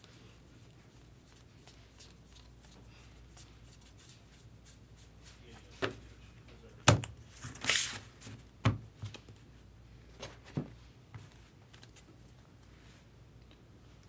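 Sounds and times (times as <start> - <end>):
cards rustling: 7.3 - 8.1.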